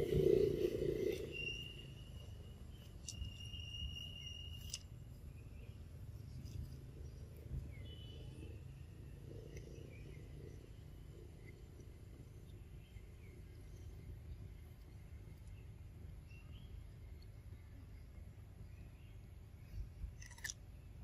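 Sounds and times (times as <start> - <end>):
high insect trill: 0.0 - 5.2
low steady rumble: 0.0 - 21.0.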